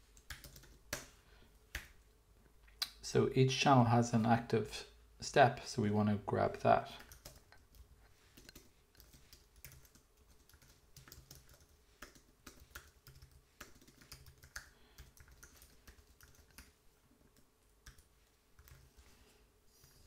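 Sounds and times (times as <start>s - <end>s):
faint keyboard typing: 0.0s - 2.1s, 6.9s - 20.0s.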